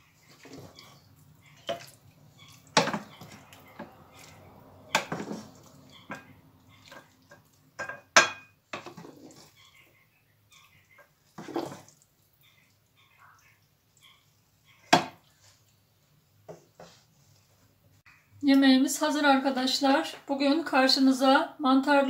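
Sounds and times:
wooden spoon scraping a pan: 0:00.0 - 0:08.1, 0:08.7 - 0:09.9, 0:10.5 - 0:12.6, 0:16.5 - 0:17.8.

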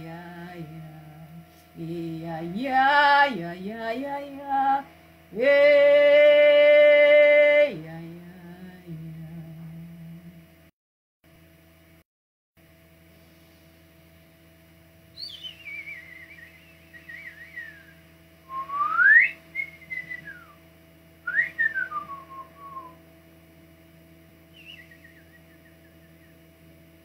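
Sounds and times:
electrical hum: 0:00.0 - 0:10.7, 0:12.6 - 0:27.0
person whistling sliding notes: 0:15.2 - 0:20.5, 0:24.5 - 0:25.5.

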